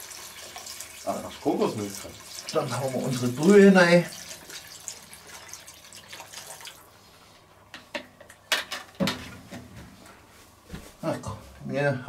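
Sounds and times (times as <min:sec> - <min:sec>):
broth pouring into a pot: 0:00.0 - 0:06.9.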